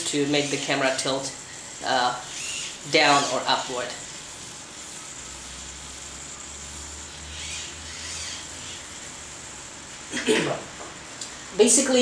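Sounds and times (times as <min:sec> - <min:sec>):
camera mount servos whirring: 0:00.1 - 0:09.4.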